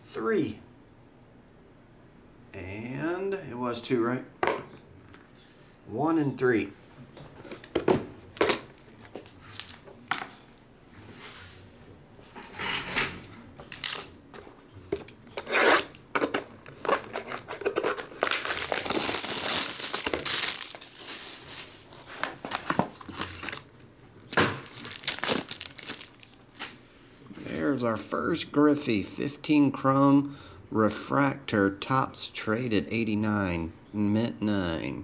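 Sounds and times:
plastic wrap crinkling: 7.4s - 10.6s, 16.8s - 26.8s
plastic wrapper crinkling: 8.3s - 10.0s, 16.8s - 26.8s
knife slitting shrink wrap: 17.2s - 23.6s, 24.6s - 26.7s.

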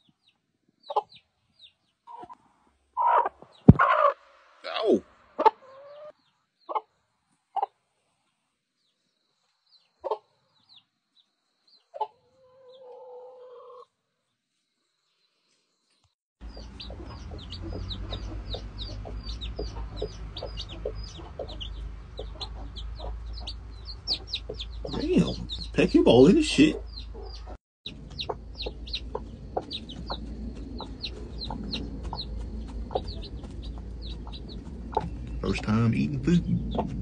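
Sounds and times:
baby chicks peeping: 0.0s - 2.4s, 3.0s - 4.2s, 5.4s - 6.9s, 16.4s - 37.0s
hens clucking: 3.0s - 6.1s, 16.4s - 37.0s
steady low rumble: 16.4s - 37.0s.

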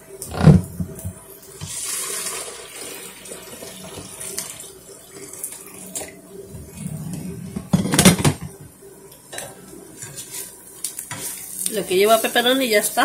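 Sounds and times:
pancake sizzling in a pan: 10.0s - 13.0s.

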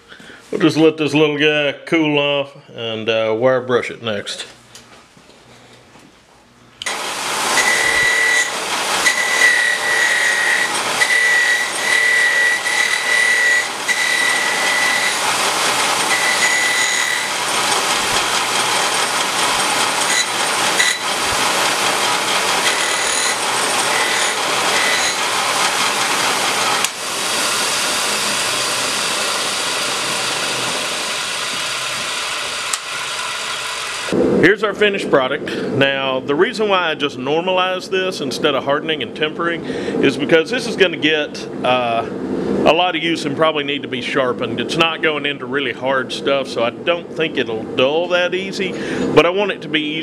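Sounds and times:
wire wheel scratching steel: 6.8s - 34.1s
high whine: 6.8s - 49.9s.

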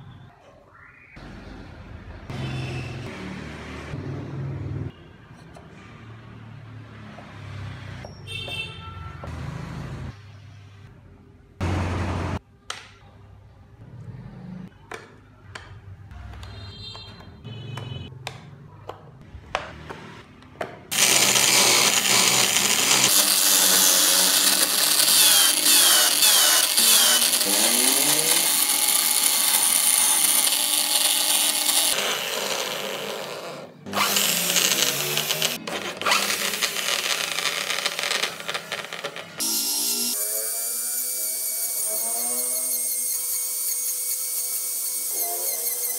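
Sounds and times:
chisel cutting wood: 20.9s - 45.9s
electric drill spinning: 20.9s - 45.9s.

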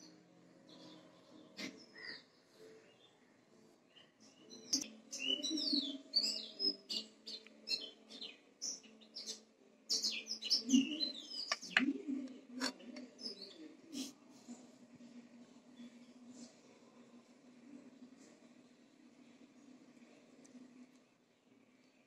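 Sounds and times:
birds chirping: 0.0s - 14.1s.

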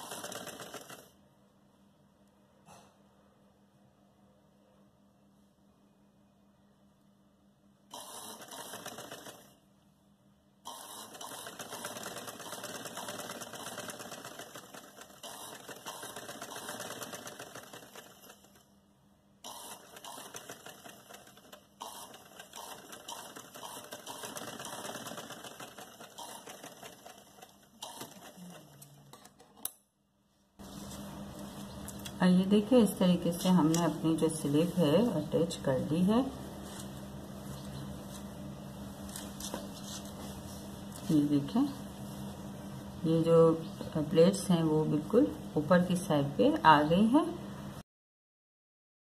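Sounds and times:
sewing machine stitching: 0.0s - 1.2s, 7.9s - 9.6s, 10.7s - 18.6s, 19.5s - 29.7s.

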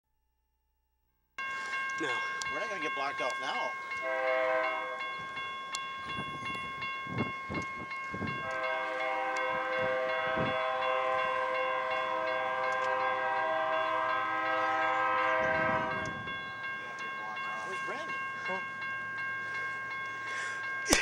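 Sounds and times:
locomotive air horn chord: 4.0s - 5.1s, 8.3s - 16.3s.

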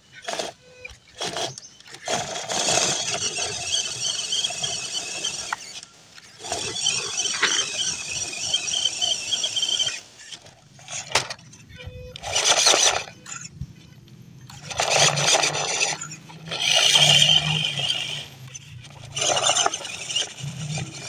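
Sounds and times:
toy car motor whining: 0.0s - 21.0s.

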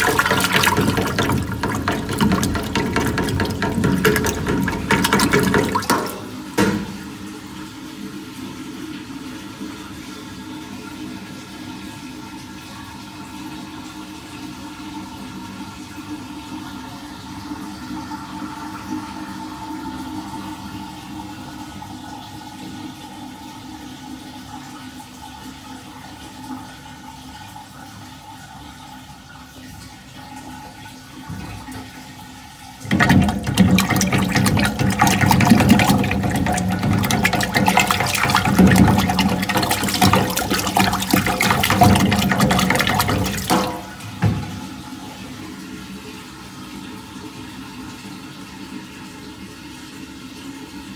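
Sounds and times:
water swirling in toilet bowl: 0.0s - 11.1s, 30.4s - 46.0s
toilet flushing rush: 0.0s - 50.9s.

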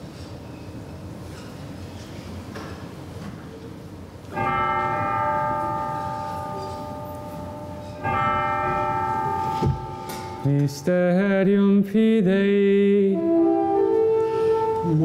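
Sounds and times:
bell ringing: 4.4s - 11.4s.

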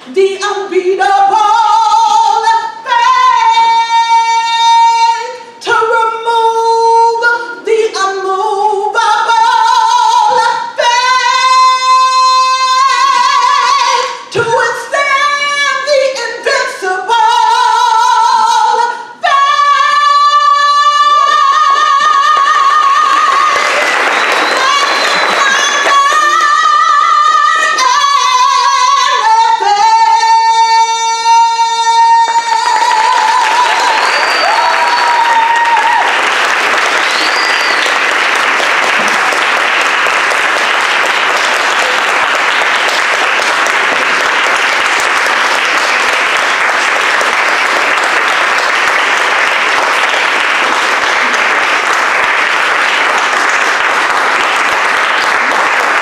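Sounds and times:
audience applauding: 21.1s - 26.7s, 32.6s - 56.0s.

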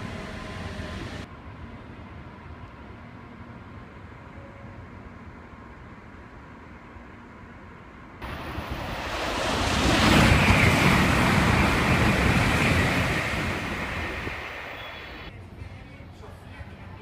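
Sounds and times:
high-speed train passing: 0.0s - 17.0s.

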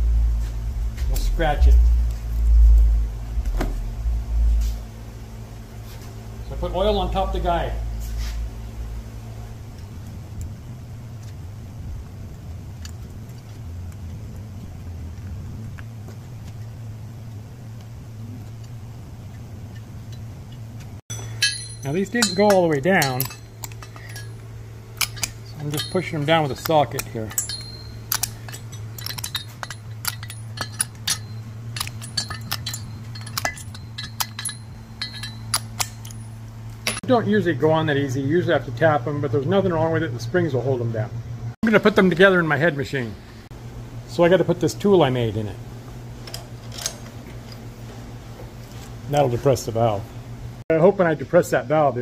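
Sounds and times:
low workshop hum: 0.0s - 52.0s
metallic socket clicking: 21.4s - 36.3s.

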